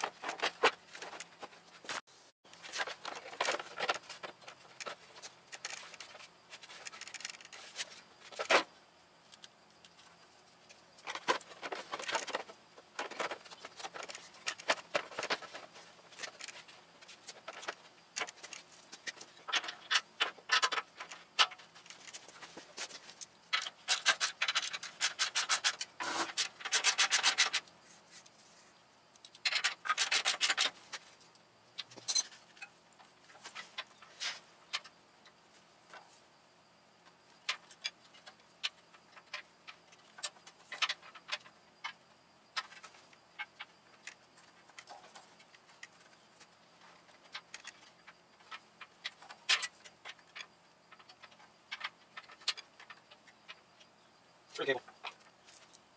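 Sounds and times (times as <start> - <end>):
metal parts scraping and knocking: 0.0 - 8.7, 11.0 - 27.7, 29.2 - 31.2, 31.8 - 36.1, 42.6 - 53.8.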